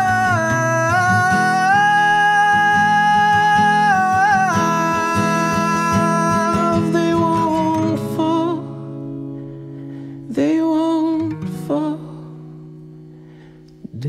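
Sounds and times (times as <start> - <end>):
man singing long notes: 0.0 - 8.8
strummed guitar: 0.0 - 14.0.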